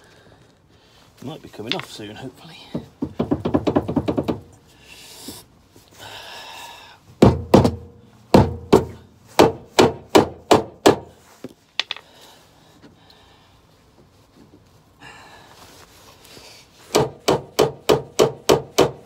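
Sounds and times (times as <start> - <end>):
heavy metal thuds: 7.2 - 11.1.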